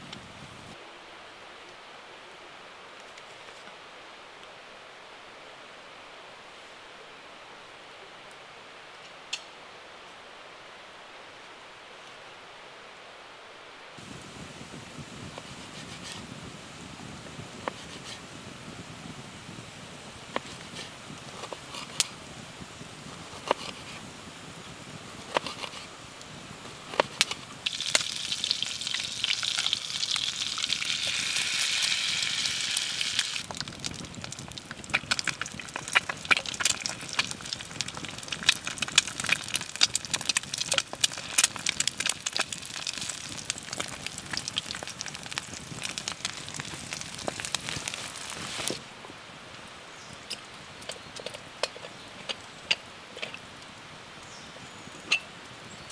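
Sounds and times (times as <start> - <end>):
crackling and popping: 20.2 - 49.2, 50.1 - 53.8
food sizzling in a pan: 27.6 - 48.8.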